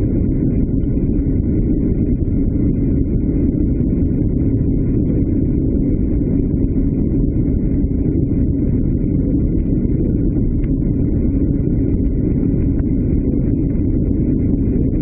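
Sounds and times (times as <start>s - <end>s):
diesel engine drone at speed: 0.0s - 15.0s
wind noise: 0.0s - 15.0s.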